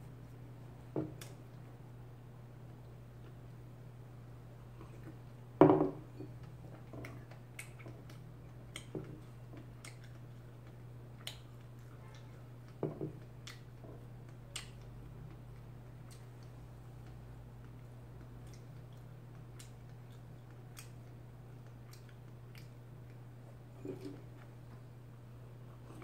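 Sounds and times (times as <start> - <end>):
steady low hum: 0.0 - 26.0
mug knocking on wooden table: 5.6 - 6.0
chewing and lip clicks: 6.2 - 24.8.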